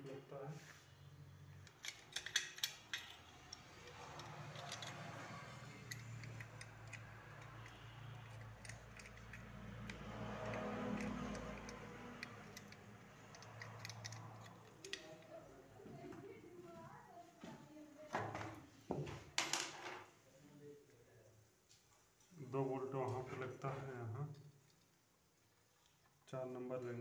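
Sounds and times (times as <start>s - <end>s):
small metal clicks and clinks: 1.5s - 15.4s.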